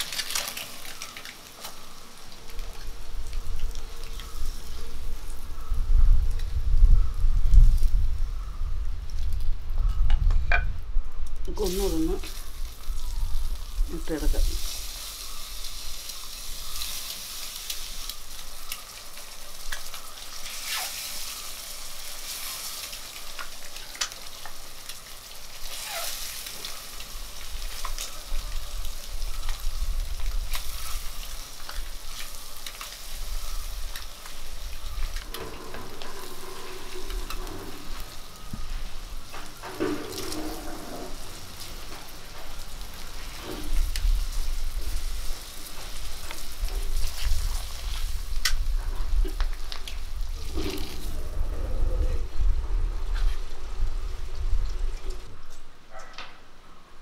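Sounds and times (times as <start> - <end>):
eggs sizzling in hot oil: 11.6 - 51.2.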